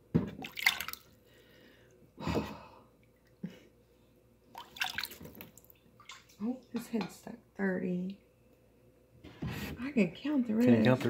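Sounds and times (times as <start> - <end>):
water splashing and dripping: 0.4 - 1.1, 4.5 - 6.7.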